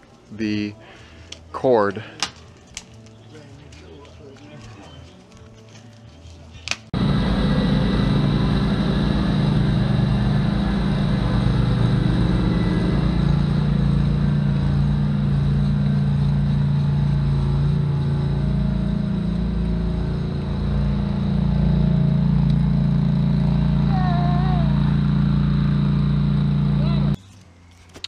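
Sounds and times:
engine running with low hum: 0:07.0 - 0:27.8.

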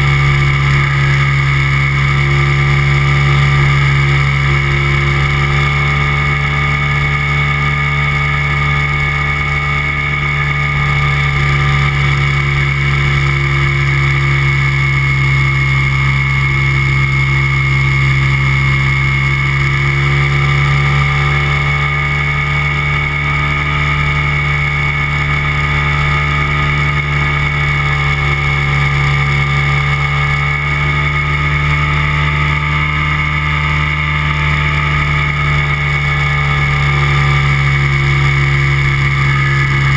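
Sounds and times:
microlight engine and propeller droning: 0:00.0 - 0:39.9.

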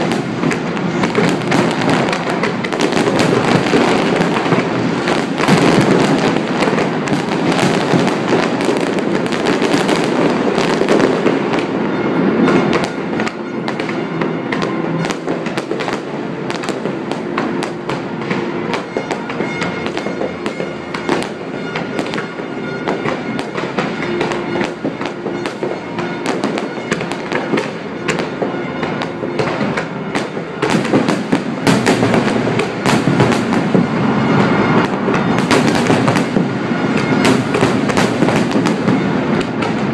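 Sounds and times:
fireworks bangs and crackling: 0:00.0 - 0:39.9
music: 0:11.9 - 0:33.5.

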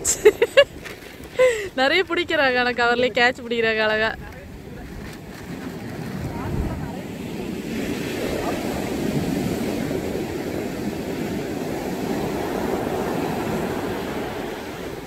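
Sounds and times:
ocean waves breaking on beach: 0:03.3 - 0:15.0.

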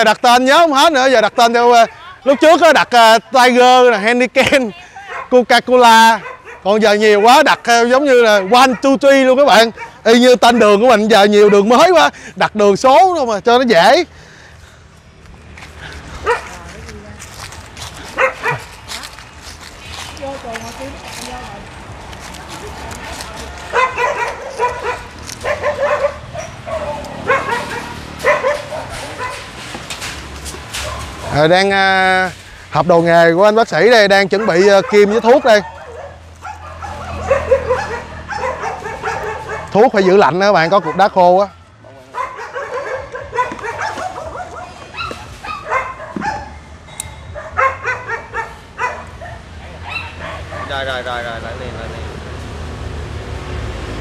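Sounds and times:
dogs barking: 0:05.0 - 0:12.1, 0:16.1 - 0:16.6, 0:18.0 - 0:19.2, 0:23.5 - 0:29.7, 0:30.7 - 0:31.5, 0:33.8 - 0:51.2.

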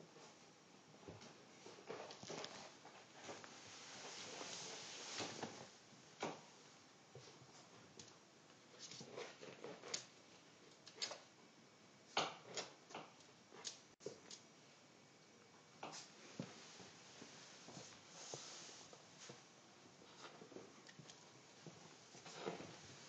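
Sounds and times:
puppy rustling on carpet: 0:01.9 - 0:05.7, 0:16.0 - 0:19.4.

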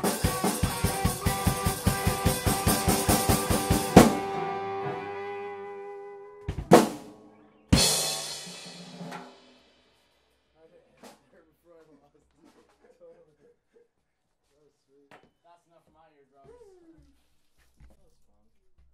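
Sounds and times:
loud drum hits: 0:00.0 - 0:04.4, 0:06.5 - 0:07.2, 0:07.8 - 0:09.6
live rock band playing fast: 0:00.0 - 0:05.7, 0:06.5 - 0:07.1, 0:07.7 - 0:09.5.

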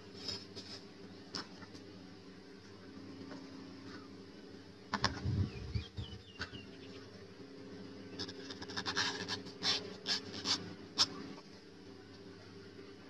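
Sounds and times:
bird chirps: 0:05.3 - 0:07.1.

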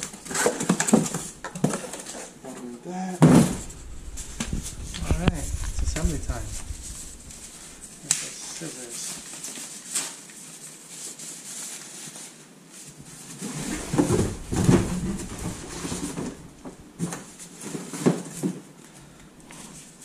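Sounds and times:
packaging rustling and crinkling: 0:00.0 - 0:02.5, 0:03.4 - 0:18.7
bumping and rubbing: 0:03.4 - 0:08.0, 0:13.4 - 0:17.1.

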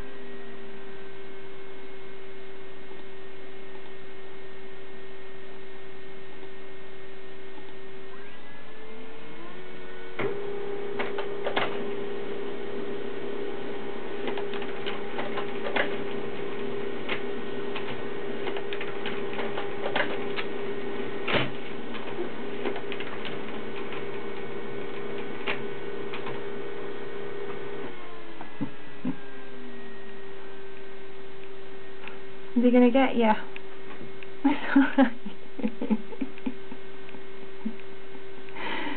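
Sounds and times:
printer humming: 0:00.0 - 0:38.9
printer clicks: 0:14.2 - 0:16.2, 0:17.0 - 0:20.5.

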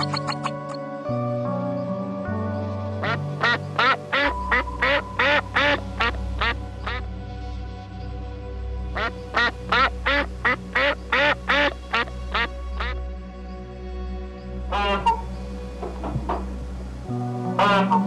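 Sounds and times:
ducks quacking: 0:00.0 - 0:00.8, 0:03.0 - 0:07.0, 0:09.0 - 0:13.0, 0:14.7 - 0:15.4, 0:17.6 - 0:18.0
background music with low notes: 0:00.0 - 0:18.0.

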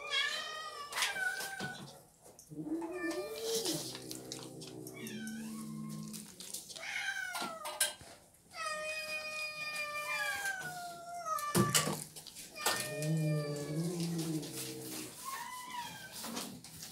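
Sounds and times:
cat growling: 0:02.4 - 0:07.1, 0:12.6 - 0:16.1
cat meowing: 0:02.6 - 0:07.9, 0:08.6 - 0:16.3.

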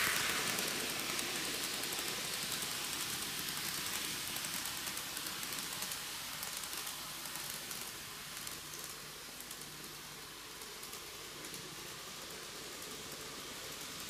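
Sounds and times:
model train rolling on track: 0:00.0 - 0:14.0
steady hiss: 0:00.0 - 0:14.0.

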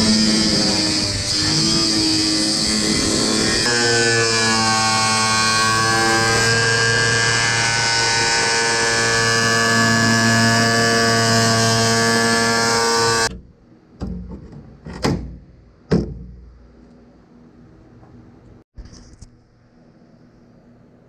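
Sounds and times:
angle grinder cutting metal: 0:00.0 - 0:13.3.

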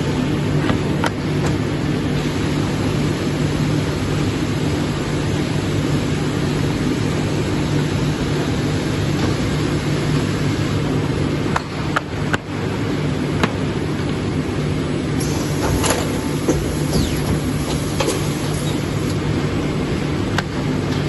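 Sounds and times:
paper cutter air table humming: 0:15.2 - 0:19.3.

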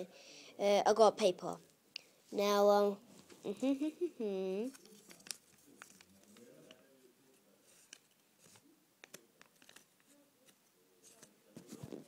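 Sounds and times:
paper rustling: 0:04.6 - 0:12.0.

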